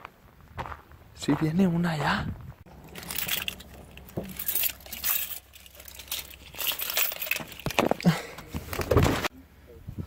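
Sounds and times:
clinks and rattles: 2.7s - 9.0s
handling noise: 2.7s - 9.3s.

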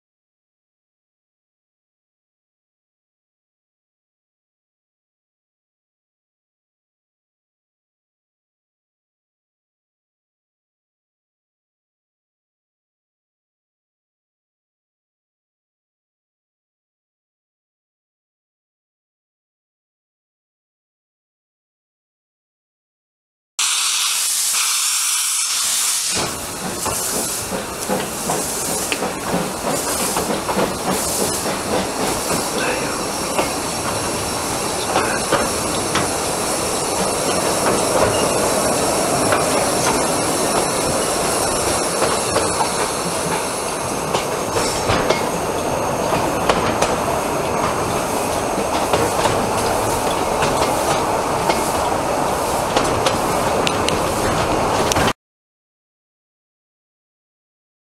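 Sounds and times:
steam hiss: 23.6s - 54.3s
train wheels rumbling: 26.0s - 55.1s.

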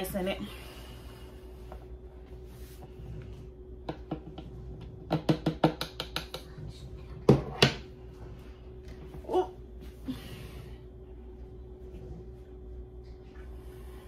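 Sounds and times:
dishes clicking and tapping: 5.1s - 6.5s.

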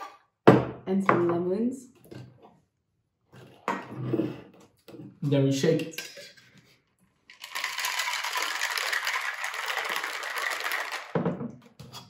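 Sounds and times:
ice rattling in cocktail shaker: 7.3s - 11.3s.

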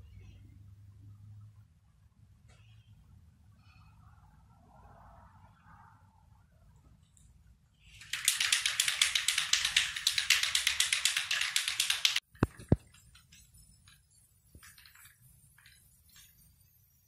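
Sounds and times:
spray can ball rattling: 7.9s - 17.0s.

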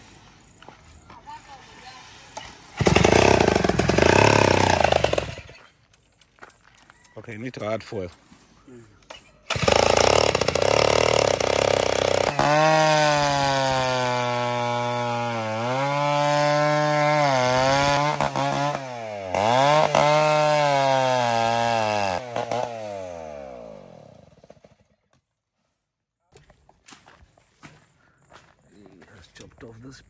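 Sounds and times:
chainsaw cutting wood: 2.4s - 5.6s, 9.5s - 25.0s.

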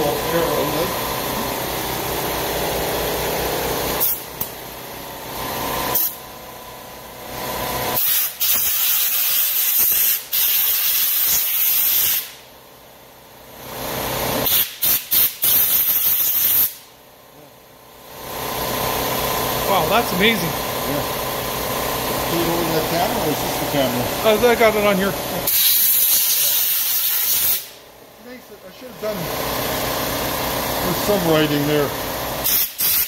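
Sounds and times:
steady machine hum: 0.0s - 8.0s, 16.8s - 32.6s
compressed air blow gun hissing: 25.5s - 27.8s, 32.4s - 33.0s.

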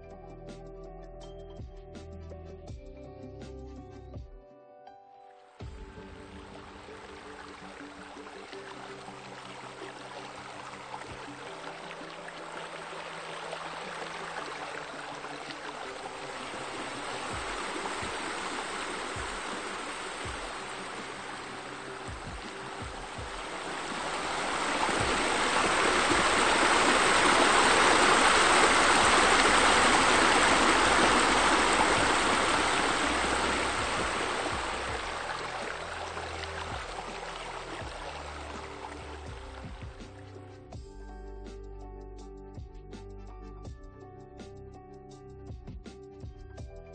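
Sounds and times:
soft background music: 0.0s - 46.9s
waterfall rushing into pool: 6.0s - 40.2s.

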